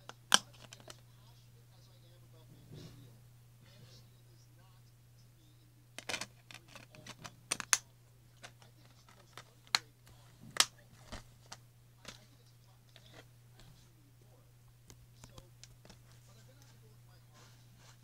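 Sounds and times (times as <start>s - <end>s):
steady low hum: 0.0s - 18.0s
plastic cases clicking and clattering: 6.0s - 7.8s.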